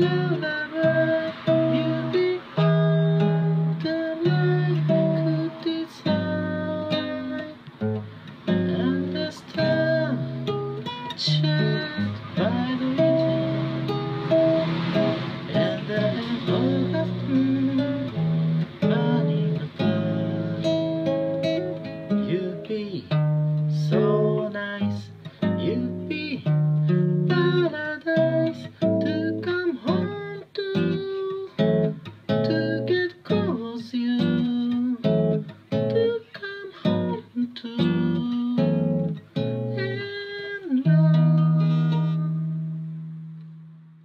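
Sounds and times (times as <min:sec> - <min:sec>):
man singing: 0:00.0 - 0:07.8, 0:08.4 - 0:42.8
classical guitar playing: 0:00.0 - 0:44.0.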